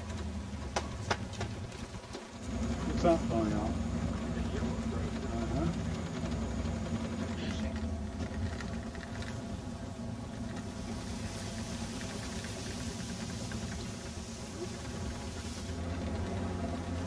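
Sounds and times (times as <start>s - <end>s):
boat motor droning: 0.0s - 17.0s
hiss: 10.6s - 16.1s.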